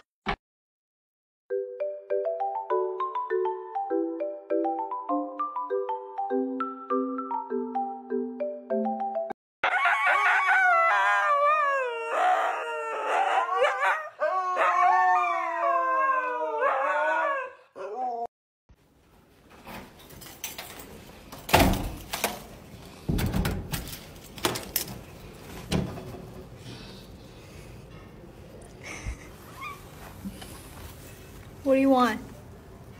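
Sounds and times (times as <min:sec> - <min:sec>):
dog howling: 0:10.0 - 0:18.3.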